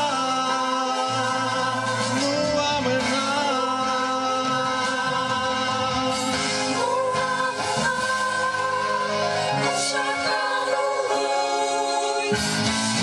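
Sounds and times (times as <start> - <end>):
musical accompaniment: 0.0 - 13.0
group singing a hymn: 4.4 - 13.0.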